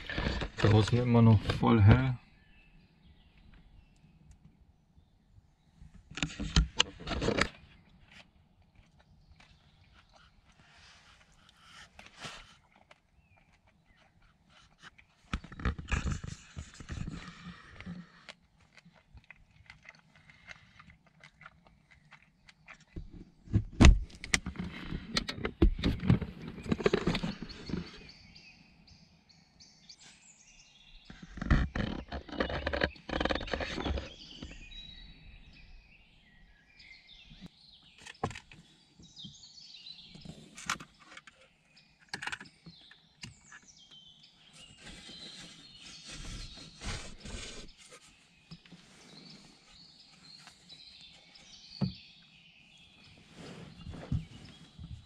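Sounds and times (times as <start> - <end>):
birds singing: 0.0 - 55.0
close rustling and knocking: 5.8 - 28.1, 31.1 - 34.7, 53.0 - 55.0.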